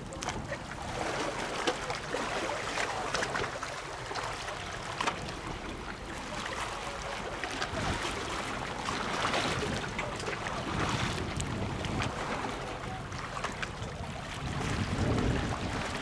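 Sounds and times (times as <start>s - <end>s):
waves washing: 0.0s - 16.0s
wind on microphone: 7.7s - 16.0s.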